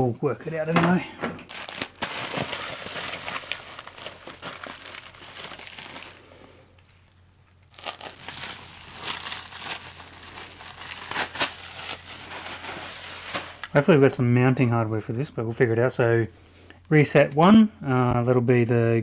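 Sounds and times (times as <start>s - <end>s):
packaging crinkling and rustling: 0.7s - 13.8s.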